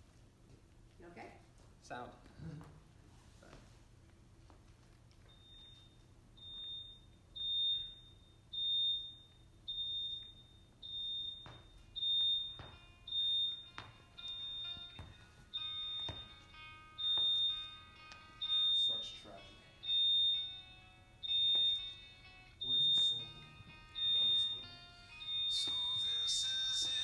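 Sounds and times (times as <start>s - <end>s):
heart monitor beeping: 5.1s - 27.0s
soft music: 11.8s - 27.0s.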